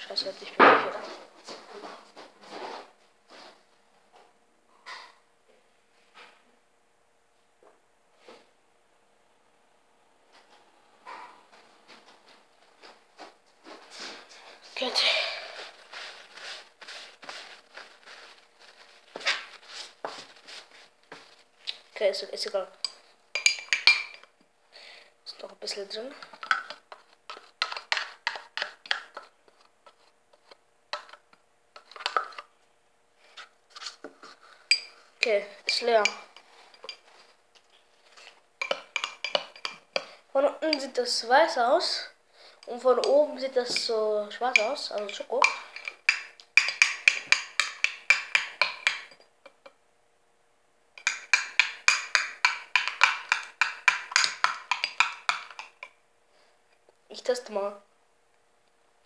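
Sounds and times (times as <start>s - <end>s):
spoon scraping plastic pot: 26.2s - 31.2s, 31.8s - 32.5s, 38.1s - 40.9s, 51.0s - 55.9s.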